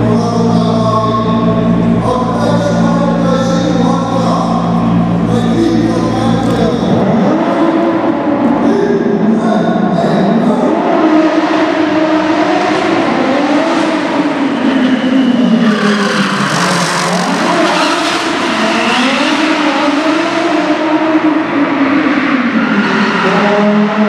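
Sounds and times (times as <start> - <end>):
car engine revving hard: 0.0 - 9.4, 10.4 - 23.6
tyres squealing and skidding: 14.4 - 19.6.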